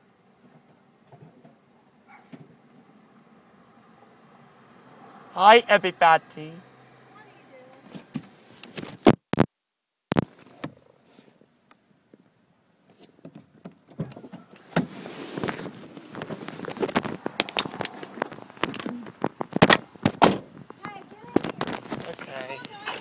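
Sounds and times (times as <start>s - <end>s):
crackling and rustling: 7.7s - 9.5s, 10.1s - 23.0s.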